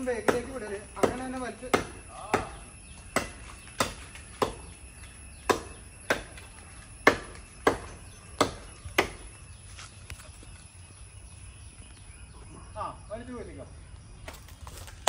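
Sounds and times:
blade chopping into wood: 0.2s - 4.7s, 5.4s - 6.4s, 7.0s - 9.3s.

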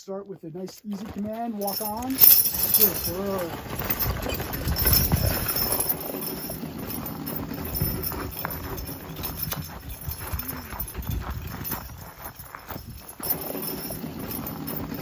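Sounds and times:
hoofsteps on snow: 0.5s - 15.0s
log scraping over snow: 1.0s - 11.5s.

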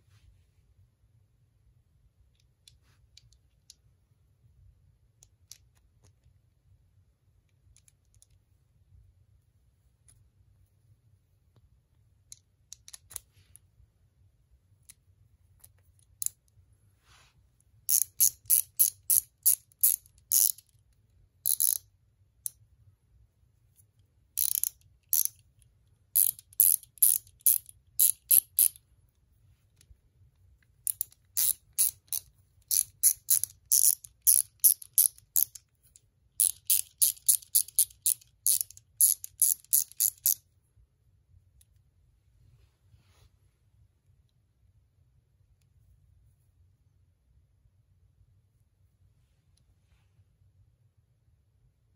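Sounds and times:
hand ratchet clicking: 17.9s - 20.6s, 21.5s - 21.8s, 24.4s - 25.4s, 26.2s - 28.8s, 30.9s - 35.6s, 36.4s - 40.4s.

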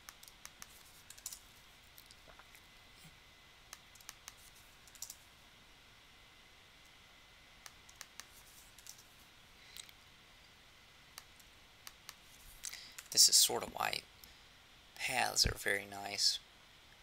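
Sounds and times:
computer mouse clicks: 0.0s - 1.4s, 3.7s - 5.2s, 7.6s - 9.1s.

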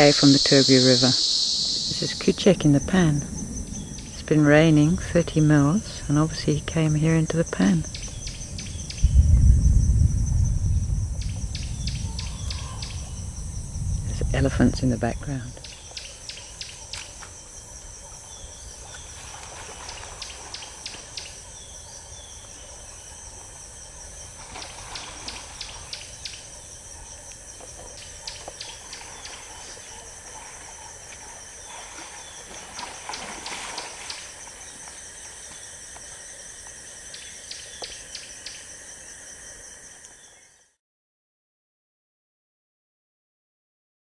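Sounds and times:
insects trilling and chirping: 0.0s - 40.8s
water splashing: 18.0s - 21.6s, 22.4s - 35.4s.

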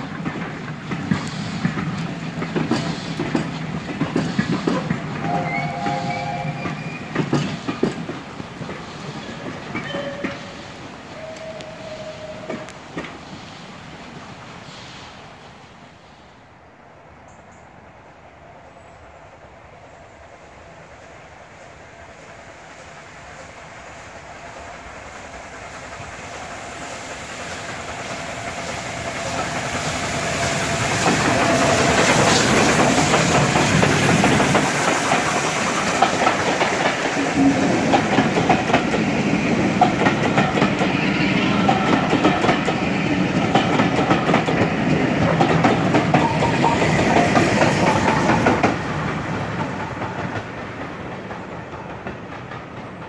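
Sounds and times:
wheels clicking over rail joints: 0.0s - 10.5s, 27.6s - 53.0s
steam train passing: 0.0s - 53.0s.

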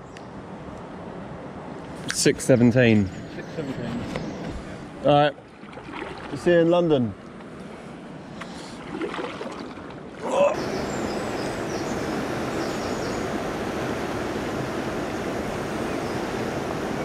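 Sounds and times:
water around kayak: 3.3s - 17.0s
wind on microphone: 10.6s - 17.0s.

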